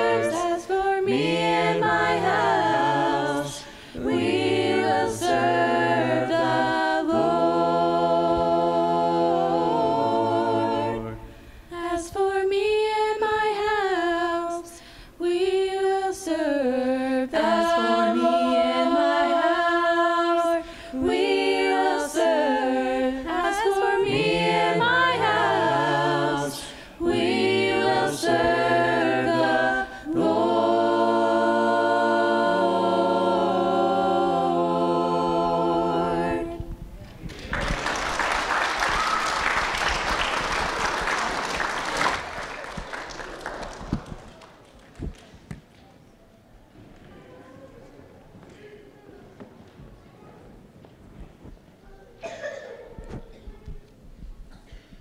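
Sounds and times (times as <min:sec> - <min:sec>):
mixed vocal group singing a cappella: 0:00.0 - 0:37.0.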